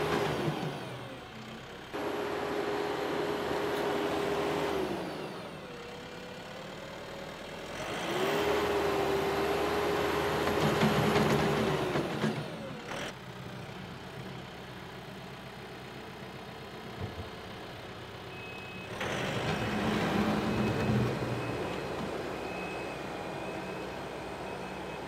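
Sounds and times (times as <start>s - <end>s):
tractor engine revving: 7.7s - 13.2s, 18.9s - 25.0s.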